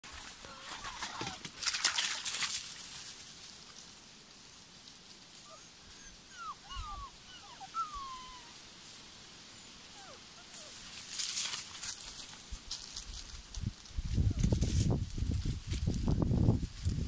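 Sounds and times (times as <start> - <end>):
puppies whimpering: 5.5 - 8.6, 9.6 - 10.8
rustling: 7.6 - 17.0.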